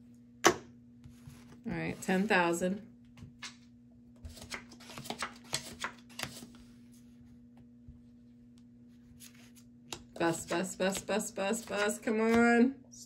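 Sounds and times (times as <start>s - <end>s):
faint steady hum: 0.0s - 13.0s
playing cards dealt on felt: 8.9s - 9.7s.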